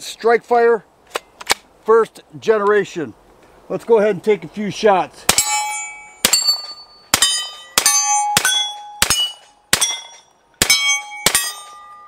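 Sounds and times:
steel target plate ringing: 5.3 - 12.0.

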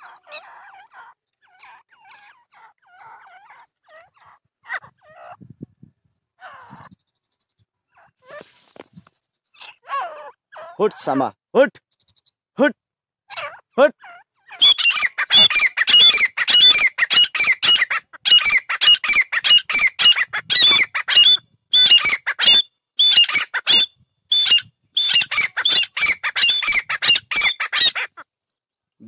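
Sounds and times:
partridges calling harshly: 0.0 - 5.4, 6.4 - 7.4, 9.4 - 11.2, 13.3 - 28.3.

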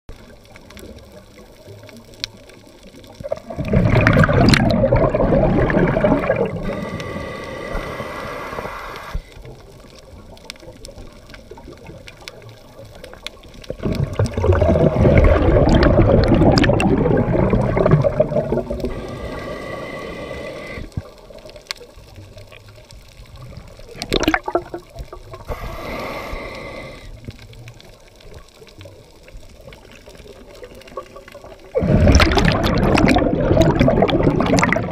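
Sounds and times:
bubbling exhaled air: 3.0 - 9.3, 13.6 - 21.4, 23.4 - 27.5, 30.8 - 34.9
diver breathing through regulator: 6.3 - 9.4, 18.4 - 21.0, 25.4 - 27.4.

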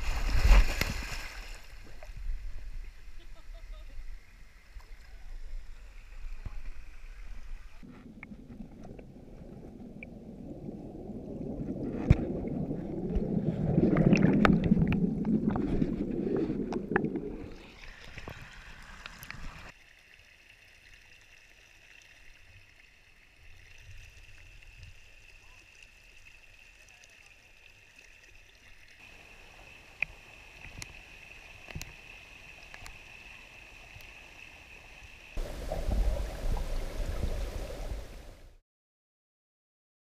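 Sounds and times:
creek water: 0.0 - 38.6
water running over rock: 4.3 - 38.5
muffled underwater rushing: 6.7 - 19.7, 35.4 - 38.6.

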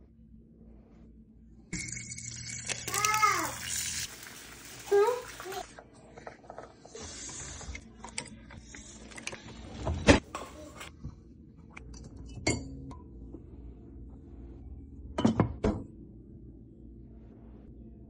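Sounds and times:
glass clinking: 1.8 - 2.9.

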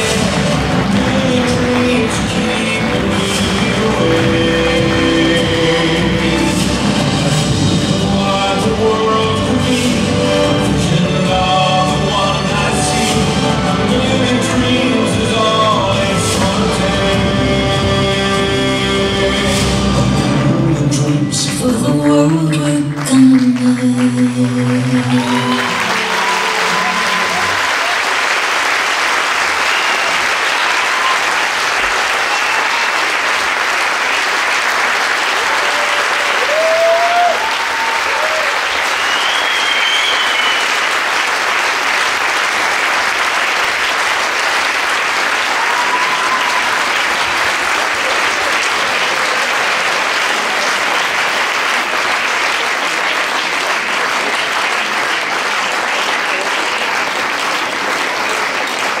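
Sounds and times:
audience applauding: 0.0 - 9.0, 9.6 - 59.0
short cheers: 25.0 - 28.2, 29.5 - 33.3, 35.4 - 40.8, 45.4 - 48.2.

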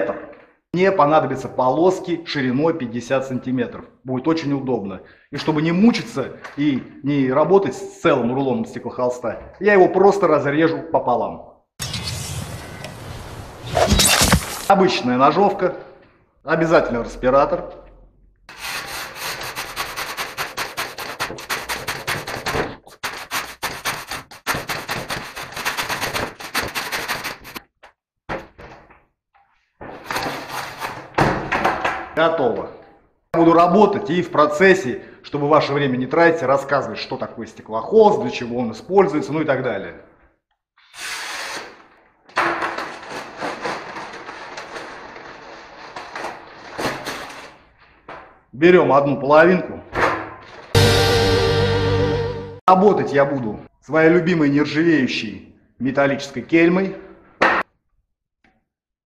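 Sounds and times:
short scrape: 11.8 - 14.7, 40.8 - 41.9
wrapping rustling and crinkling: 44.0 - 46.8.

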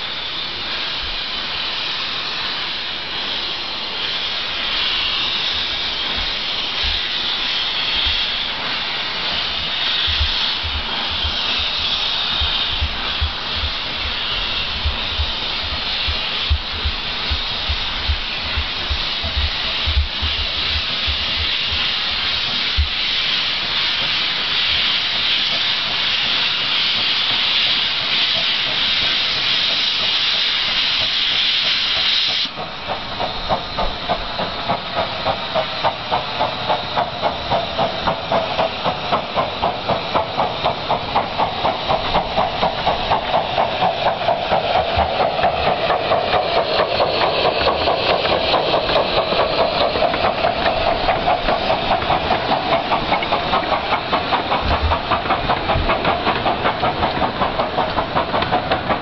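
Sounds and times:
steam hissing: 0.0 - 59.0
steam locomotive chuffing: 0.0 - 59.0.

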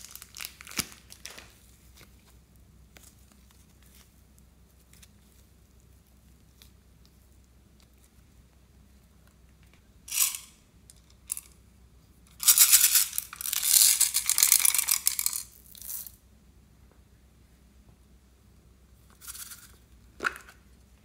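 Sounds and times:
toy mechanism clicking rapidly: 10.1 - 10.5, 12.4 - 16.1.

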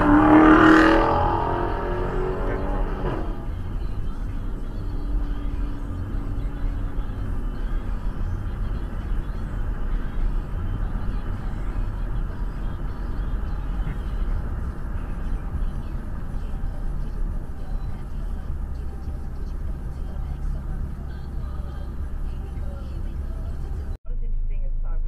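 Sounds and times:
car road and engine noise: 0.0 - 25.0.

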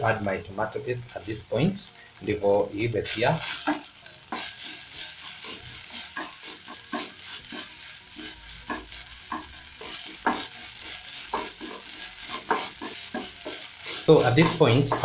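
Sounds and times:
meat sizzling in frying pan: 0.0 - 15.0
spatula scraping and tapping pan: 3.4 - 15.0.

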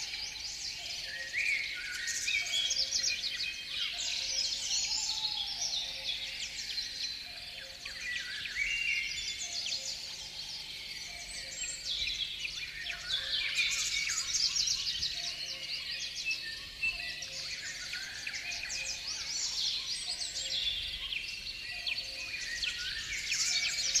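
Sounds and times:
small songbirds chirping: 0.0 - 24.0.

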